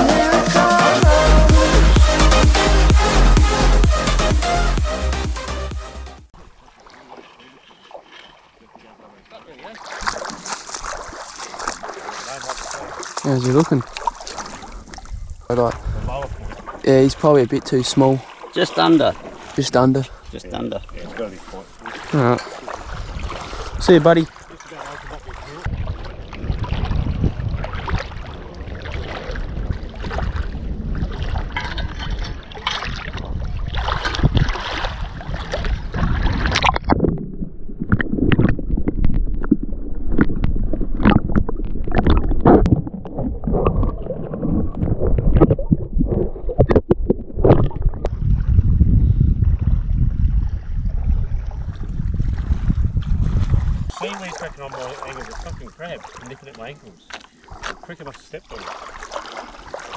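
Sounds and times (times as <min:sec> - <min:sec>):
water splashing around wading legs: 0:06.4 - 0:20.0, 0:20.8 - 0:48.1, 0:51.5 - 0:59.9
wind rumble on microphone: 0:14.8 - 0:17.2, 0:22.8 - 0:24.2, 0:25.5 - 0:54.0.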